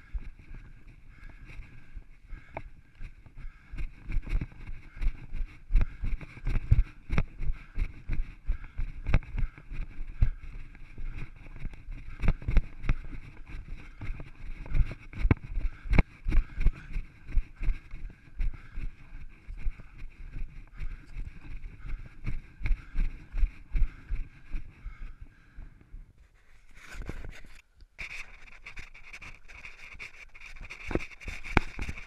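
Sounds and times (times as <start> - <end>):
running footfalls on rock: 2.4 - 23.2.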